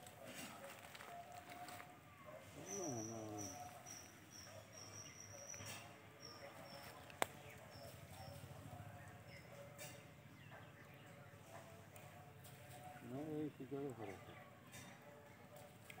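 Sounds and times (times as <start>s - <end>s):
bird chirping: 2.6s - 11.8s.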